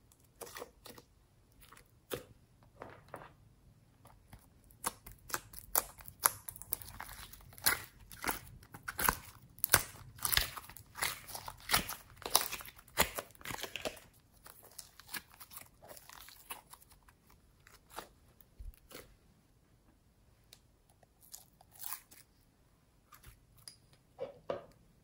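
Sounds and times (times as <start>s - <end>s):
slime crackling and popping: 4.3s - 18.1s.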